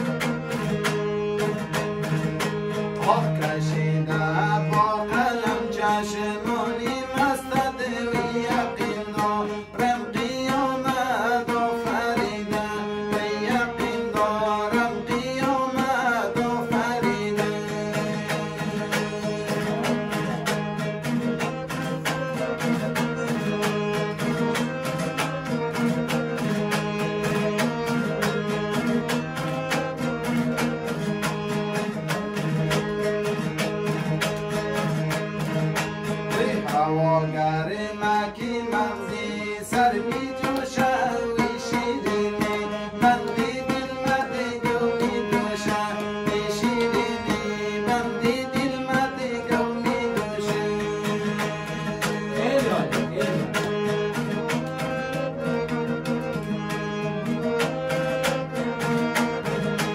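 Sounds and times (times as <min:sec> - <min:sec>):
harmonium chords: 0:00.0 - 0:59.9
lute strummed fast: 0:00.0 - 0:59.9
person singing: 0:02.9 - 0:20.7, 0:36.3 - 0:53.9.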